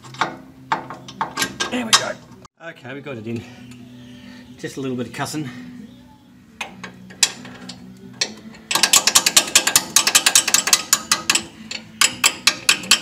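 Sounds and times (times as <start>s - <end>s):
hand ratchet clicking: 6.6s - 13.0s.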